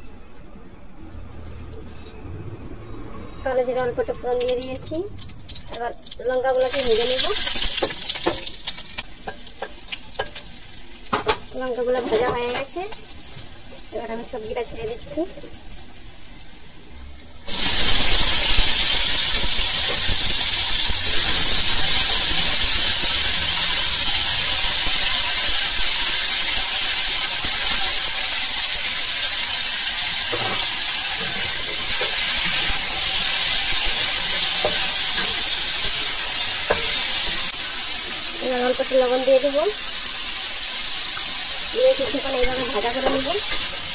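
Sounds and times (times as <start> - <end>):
food sizzling in hot oil: 3.5 - 43.9
metal spatula tapping and scraping: 7.6 - 13.4, 30.3 - 37.5, 42.1 - 43.9.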